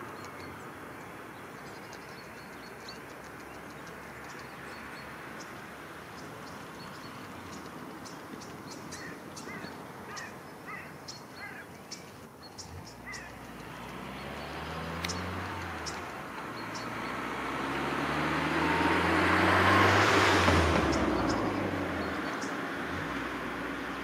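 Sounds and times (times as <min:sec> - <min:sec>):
bird chirps: 0:00.0 - 0:19.0, 0:20.7 - 0:22.7
passing vehicle rush: 0:12.4 - 0:24.0.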